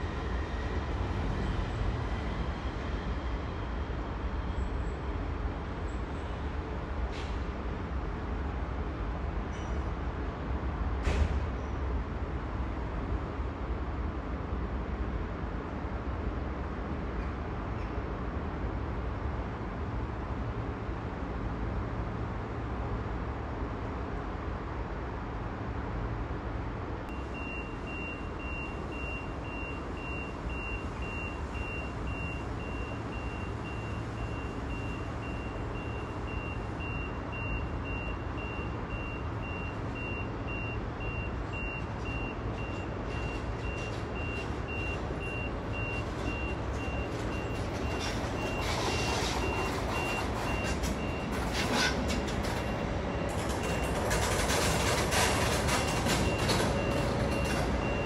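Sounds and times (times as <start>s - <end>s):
low rumble of rail yard: 0.0s - 58.0s
vehicle warning beeper: 27.1s - 58.0s
electric locomotive rolling past: 45.6s - 58.0s.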